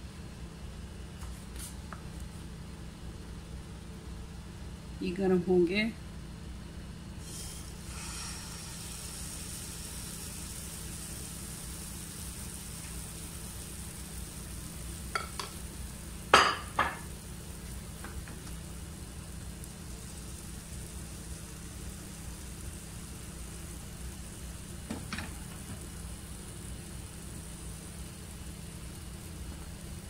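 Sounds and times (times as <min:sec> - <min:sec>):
batter sizzling in a frying pan: 0:07.1 - 0:30.0.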